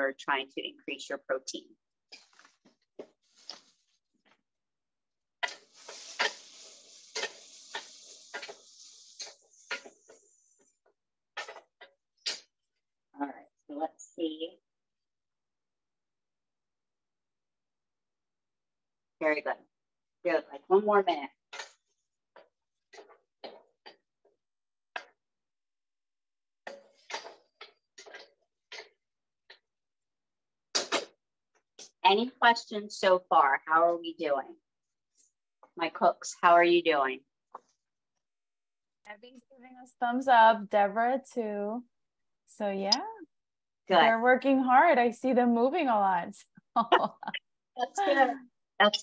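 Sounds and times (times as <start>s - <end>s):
vegetables sizzling in pan: 5.4s - 10.8s.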